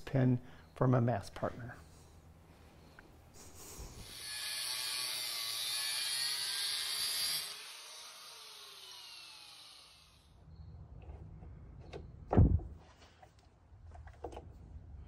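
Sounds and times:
angle grinder cutting metal rod: 4.0 - 10.3
grinder whine spinning down: 5.6 - 10.4.

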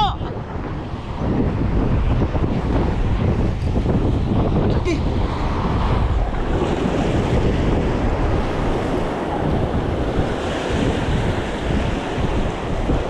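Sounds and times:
wind buffeting microphone: 0.0 - 13.0
surf breaking on rocks: 5.3 - 13.0.

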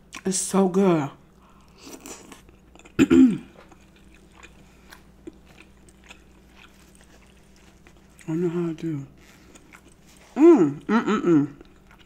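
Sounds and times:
close chewing: 1.4 - 12.0
hum of enjoyment: 10.4 - 11.7.

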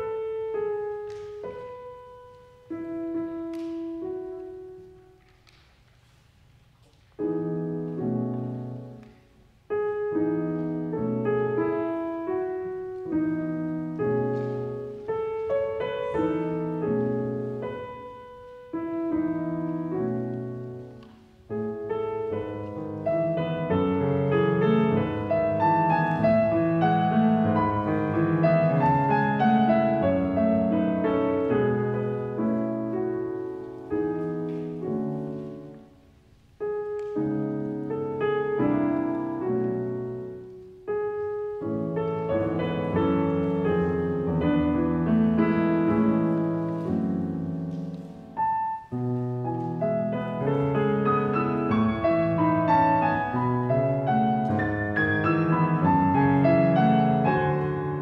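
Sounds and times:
grand piano playing: 0.0 - 58.0.

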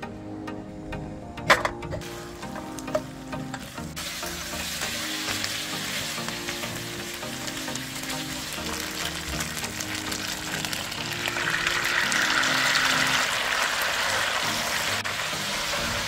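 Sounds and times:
background music: 0.0 - 16.0
chicken sizzling in a frying pan: 2.0 - 16.0.

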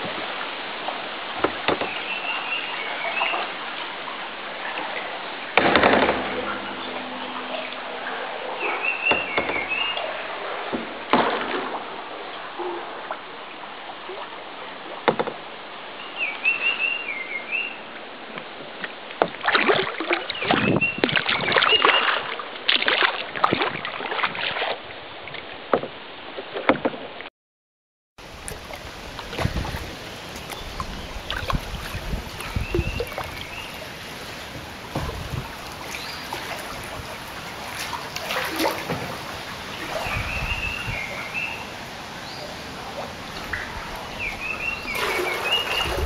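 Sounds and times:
paddle strokes splashing: 0.0 - 15.5, 16.6 - 27.3, 28.2 - 46.0
river water rippling: 0.0 - 27.3, 28.2 - 46.0.

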